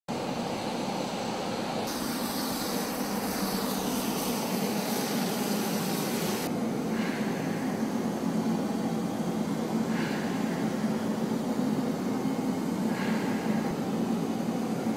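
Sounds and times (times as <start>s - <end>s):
aircraft engine drone: 0.1s - 14.9s
high hiss: 1.9s - 7.9s.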